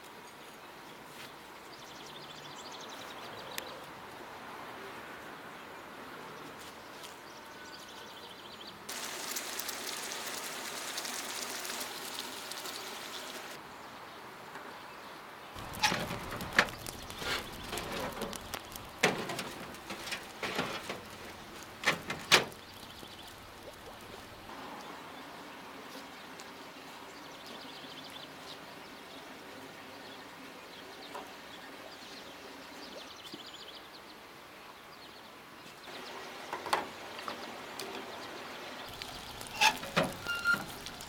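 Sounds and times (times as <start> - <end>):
steady hiss: 8.9 - 13.6.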